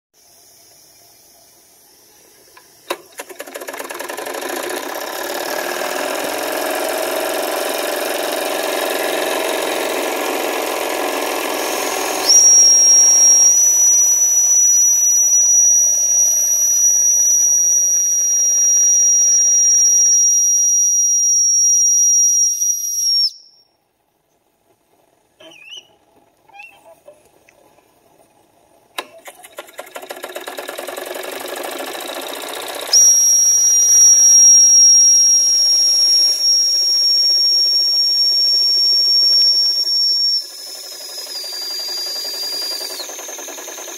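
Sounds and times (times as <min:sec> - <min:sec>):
toy steam engine chuffing: 0:02.9 - 0:14.2, 0:29.0 - 0:43.9
high steam whistle: 0:04.7 - 0:23.7, 0:32.9 - 0:43.9.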